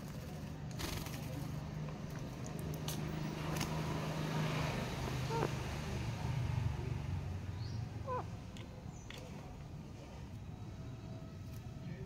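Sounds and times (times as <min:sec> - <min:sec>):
parakeet squawk: 0:05.2 - 0:05.6, 0:08.0 - 0:08.3.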